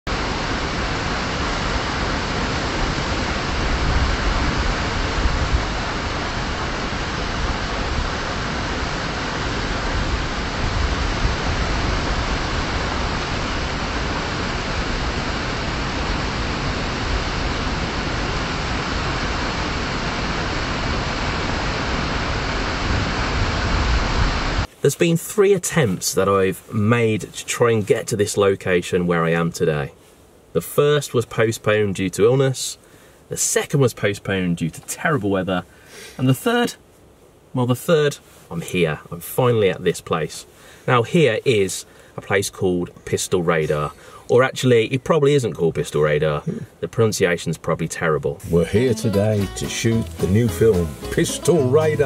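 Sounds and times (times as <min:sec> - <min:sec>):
waterfall rushing into pool: 0:00.1 - 0:24.7.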